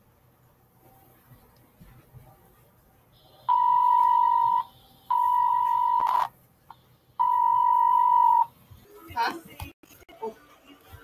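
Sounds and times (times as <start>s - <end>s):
long electronic alert beeps: 3.5s - 6.3s, 7.2s - 8.5s.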